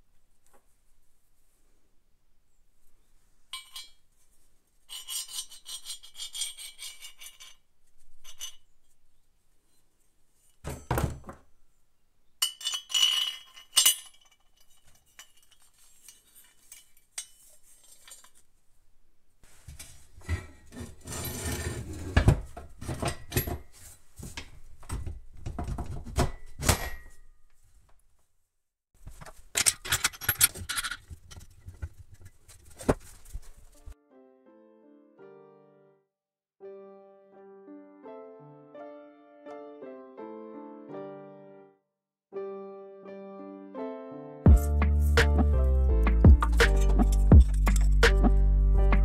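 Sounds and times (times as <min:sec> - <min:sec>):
metal scraping and rubbing: 0:04.9 - 0:08.7, 0:20.2 - 0:22.4, 0:44.5 - 0:48.5.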